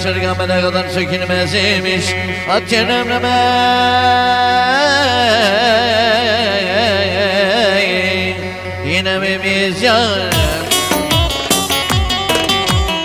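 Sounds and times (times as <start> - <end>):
sharp drum strokes: 10.3 - 13.0.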